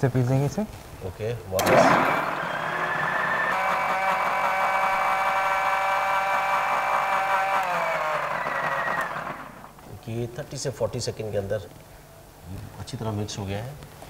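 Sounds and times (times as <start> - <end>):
mixer grinder motor whining: 1.6 - 9.9.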